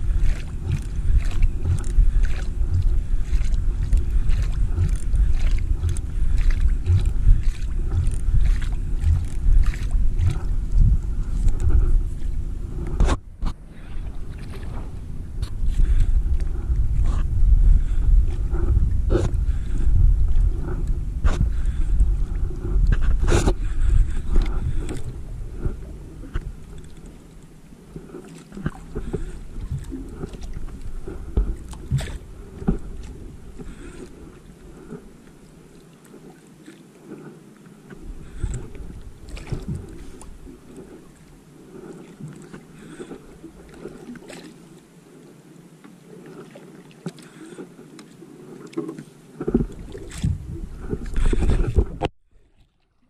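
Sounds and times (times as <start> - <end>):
wind on microphone: 0.0 - 35.2, 38.0 - 44.4, 49.4 - 52.1
water against boat: 0.0 - 53.0.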